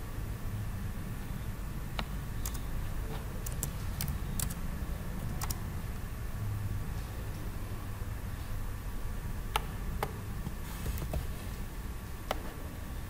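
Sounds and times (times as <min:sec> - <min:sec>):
steady low hum: 0:00.0 - 0:13.0
keyboard key clicks: 0:05.3 - 0:05.6.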